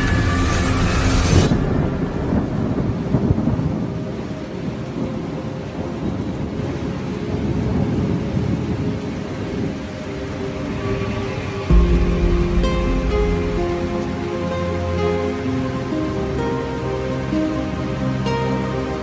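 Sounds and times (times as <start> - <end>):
rain: 0.0 - 19.0
rolling thunder: 1.4 - 8.9, 11.4 - 15.2.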